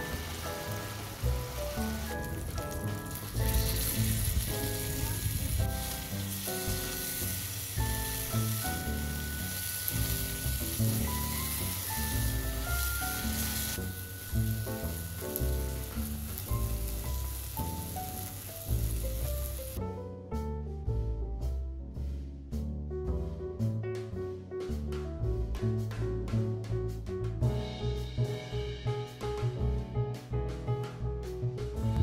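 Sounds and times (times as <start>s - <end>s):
chicken sizzling in oil: 0.0s - 19.8s
background music: 0.0s - 32.0s.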